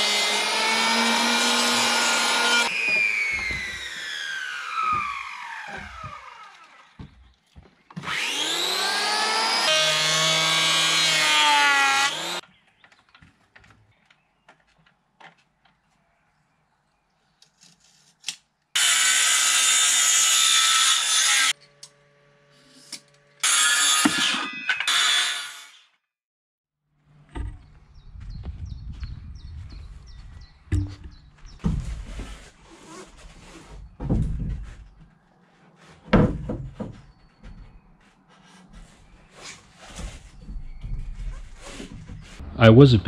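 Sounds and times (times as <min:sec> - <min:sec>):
circular saw cutting wood: 0:00.0 - 0:07.0, 0:08.0 - 0:12.4, 0:18.8 - 0:26.0.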